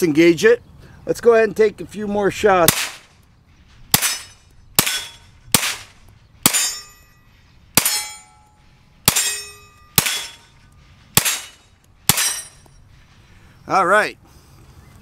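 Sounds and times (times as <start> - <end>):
gunshots with ringing tail: 2.7 - 3.0, 3.9 - 7.0, 9.0 - 10.5, 11.2 - 12.5.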